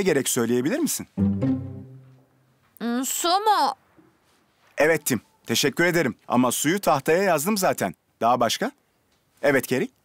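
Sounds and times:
low string phrase: 1.2 - 2.2.

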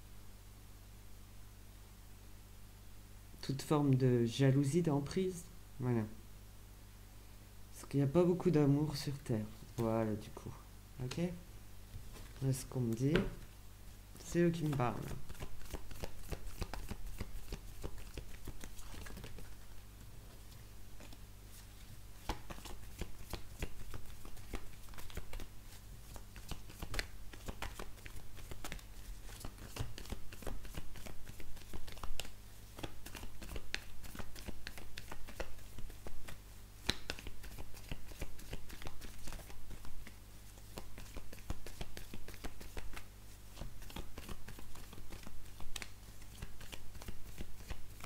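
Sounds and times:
faint low hum: 0.0 - 48.0
cards being shuffled: 14.2 - 48.0.

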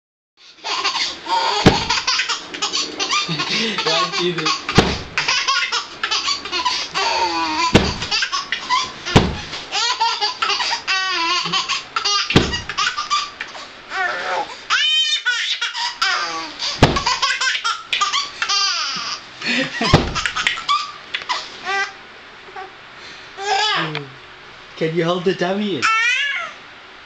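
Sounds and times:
baby belly-laughing: 0.6 - 21.9
pillow thumping on bed: 1.7 - 2.0, 4.8 - 5.2, 7.7 - 8.2, 9.2 - 9.5, 12.4 - 12.8, 16.8 - 17.2, 19.9 - 20.3.

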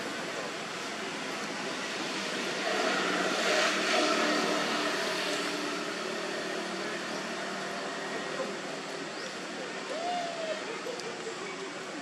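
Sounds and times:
outdoor background noise: 0.0 - 12.0
motor vehicle passing: 0.8 - 8.8.

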